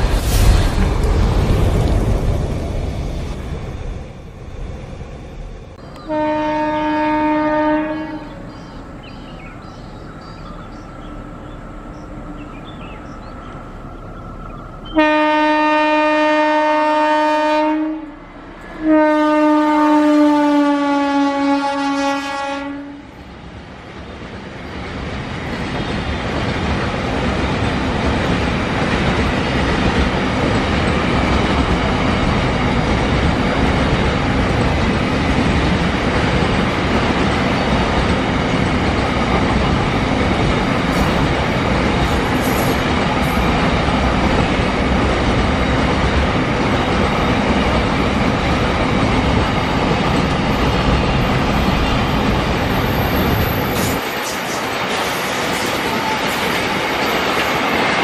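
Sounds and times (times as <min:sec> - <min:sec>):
train wheels on rails: 0:00.0 - 0:58.0
train horn: 0:06.0 - 0:08.4, 0:14.9 - 0:23.2.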